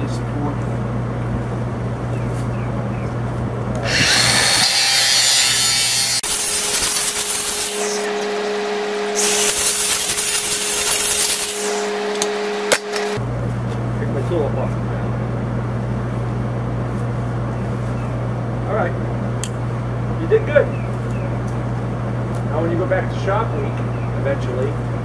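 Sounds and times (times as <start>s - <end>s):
motor whine: 3.7s - 13.3s
angle grinder cutting hiss: 3.8s - 8.4s, 9.1s - 13.2s.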